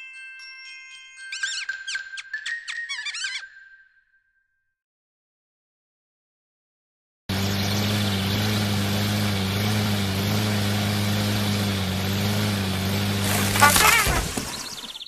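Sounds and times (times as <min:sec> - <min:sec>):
lawn mower engine running: 0:07.3 - 0:15.0.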